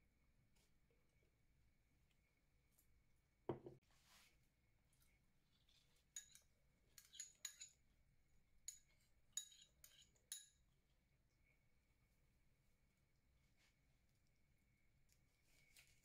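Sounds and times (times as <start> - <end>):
metal spoon clinking ceramic bowl: 6.1 - 7.8, 8.6 - 10.6.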